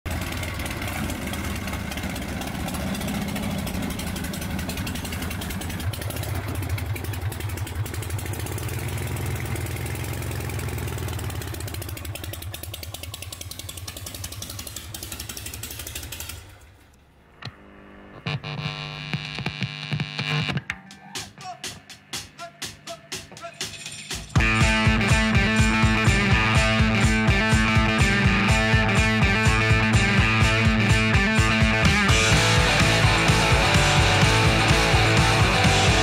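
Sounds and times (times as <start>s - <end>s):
motorcycle engine idling: 0.1s - 17.2s, 24.4s - 36.0s.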